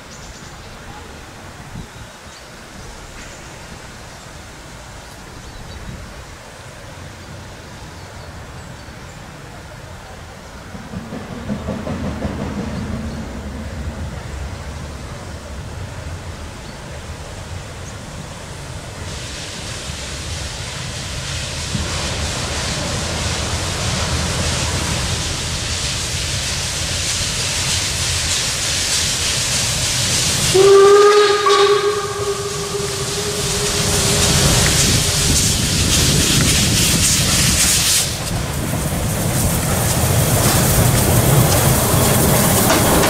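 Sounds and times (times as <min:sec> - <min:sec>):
steam locomotive exhaust beats: 0:09.2 - 0:43.0
steam hissing from drain cocks: 0:18.7 - 0:43.0
steam whistle blast: 0:30.4 - 0:35.8.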